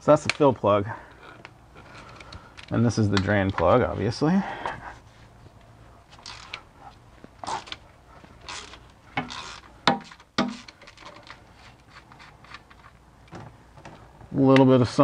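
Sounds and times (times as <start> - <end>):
ratchet clicking: 8.4 - 10.8.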